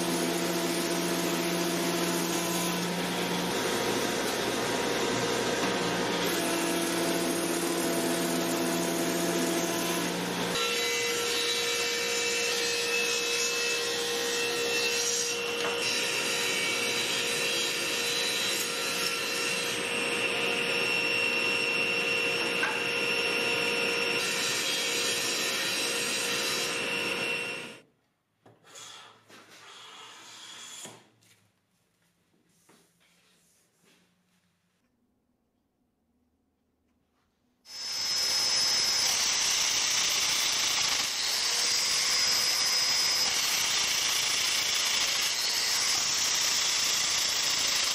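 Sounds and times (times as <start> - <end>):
table saw whine: 0.0 - 27.8, 37.7 - 47.9
thickness planer cutting wood: 0.0 - 27.8.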